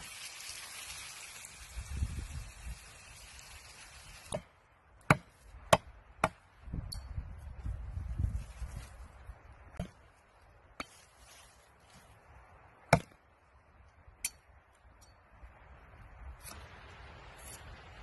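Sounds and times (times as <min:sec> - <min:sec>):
blade chopping dry branches: 0:12.9 - 0:13.2.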